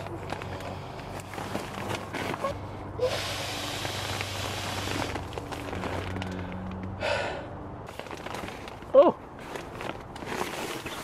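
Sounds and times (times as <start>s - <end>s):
nylon rustling: 0.0s - 6.7s, 7.9s - 11.0s
breath blown into valve: 3.0s - 5.2s.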